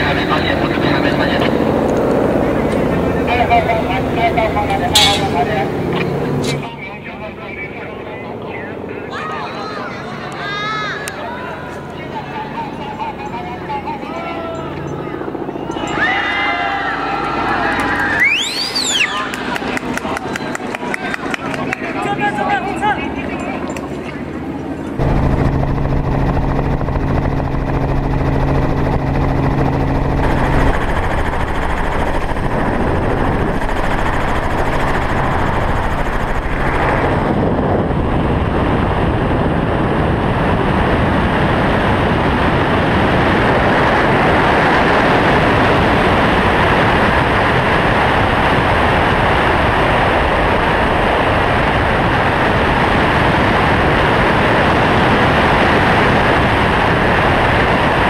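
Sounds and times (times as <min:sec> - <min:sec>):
helicopter hum: 0:00.0 - 0:58.0
loud rushing noise: 0:04.8 - 0:06.7, 0:24.9 - 0:58.0.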